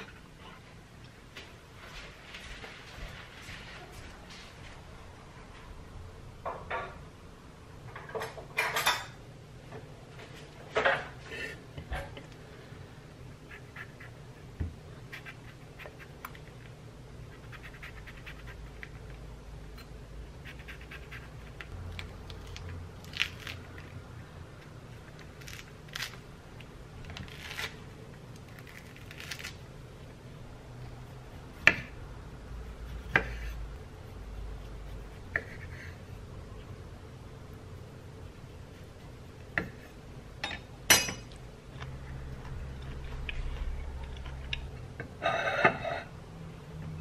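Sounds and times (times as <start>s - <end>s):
fruit peel tearing: 20.5s - 23.9s, 27.2s - 29.6s
knife cutting on wooden board: 33.0s - 33.6s.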